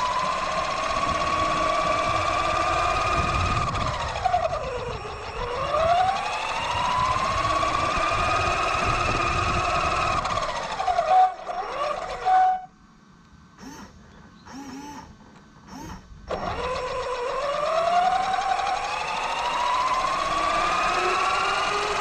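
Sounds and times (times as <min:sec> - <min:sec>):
electric motor whining: 0:00.0 - 0:12.7, 0:13.6 - 0:22.0.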